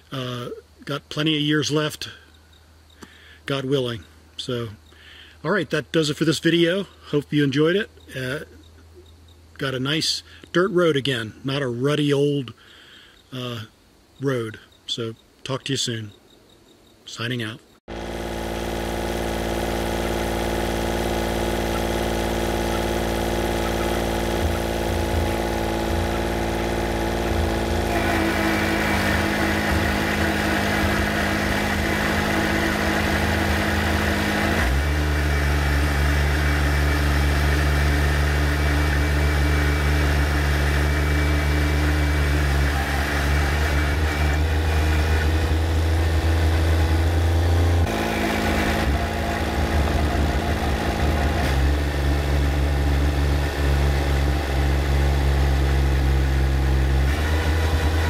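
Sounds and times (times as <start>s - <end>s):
tractor diesel engine running: 17.9s - 58.0s.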